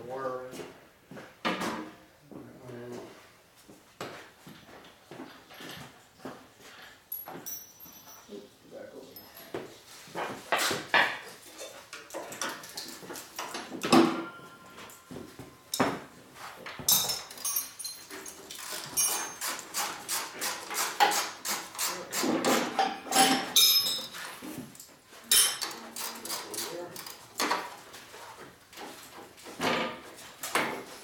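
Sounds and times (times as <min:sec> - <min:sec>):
metal tools clinking and knocking: 0:07.1 - 0:08.4, 0:11.5 - 0:15.9, 0:16.8 - 0:27.7.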